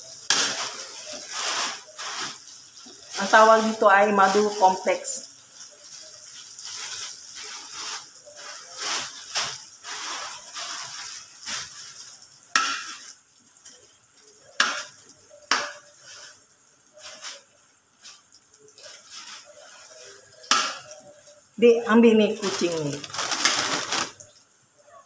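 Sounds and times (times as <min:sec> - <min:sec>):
butter sizzling in a wok: 0:00.0 - 0:24.8
spatula scraping and tapping pan: 0:00.2 - 0:03.0, 0:07.0 - 0:17.4, 0:18.0 - 0:21.3.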